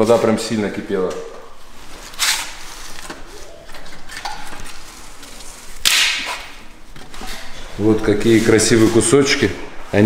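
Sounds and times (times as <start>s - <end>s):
faint knocks and rustling: 6.8s - 9.4s.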